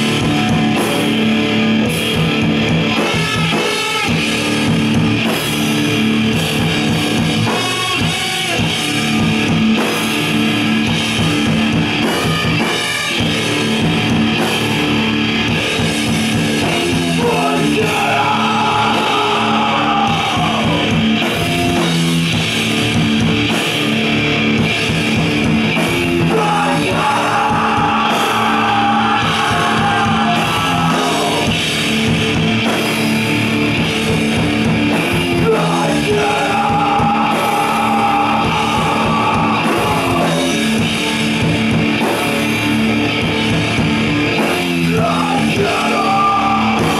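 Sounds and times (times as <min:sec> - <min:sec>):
rock band playing: 0:00.0 - 0:46.9
person singing: 0:16.6 - 0:21.8, 0:26.1 - 0:31.6, 0:35.2 - 0:40.8, 0:44.8 - 0:46.9.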